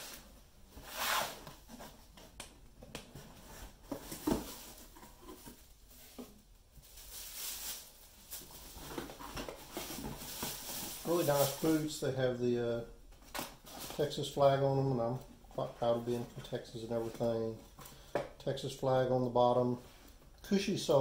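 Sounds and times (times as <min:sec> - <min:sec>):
tissue paper rustling: 0:06.8 - 0:11.8.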